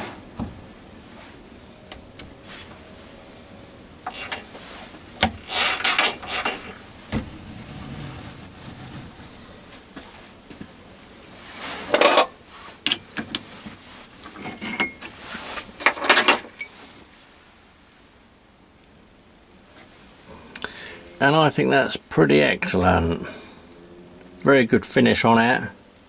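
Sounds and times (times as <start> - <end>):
metal scraping and knocking: 4.1 - 4.6, 5.2 - 10.0
ringing metallic clinks: 14.4 - 15.1.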